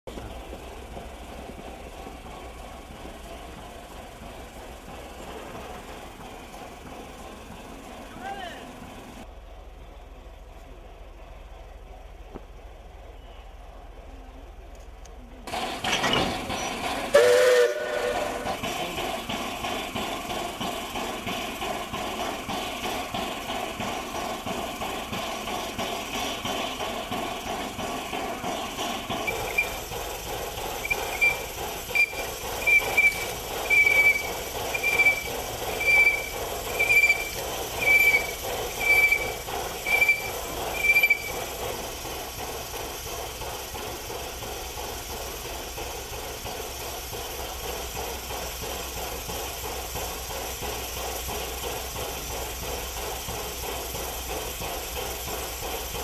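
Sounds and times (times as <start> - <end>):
steam train squealing: 13.0 - 14.0, 15.5 - 56.0
steady steam hiss: 15.5 - 56.0.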